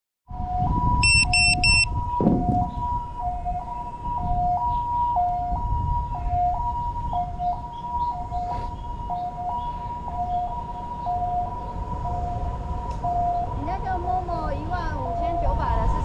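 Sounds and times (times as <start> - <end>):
two-tone siren: 0.3 - 16.0
short high electronic beeps: 1.0 - 1.9.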